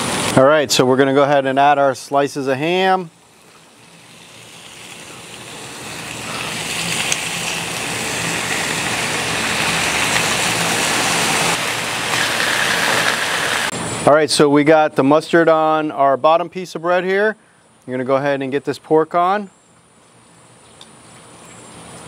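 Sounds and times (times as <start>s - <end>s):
ham sizzling on griddle: 2.8s - 13.7s.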